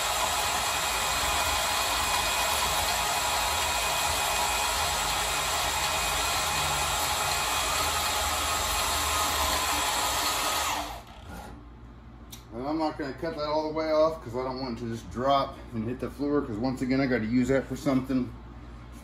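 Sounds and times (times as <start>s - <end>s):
band saw cutting metal: 0.0s - 11.6s.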